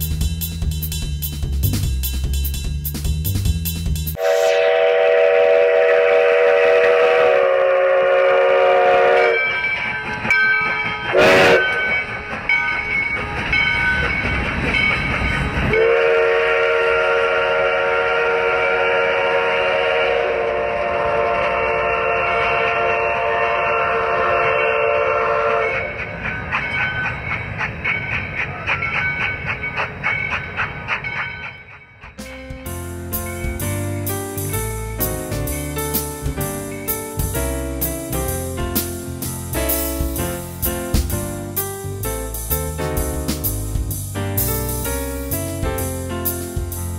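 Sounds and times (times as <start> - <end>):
train rumbling on rails: 0.0 - 46.9
steam locomotive chime whistle: 4.2 - 30.5.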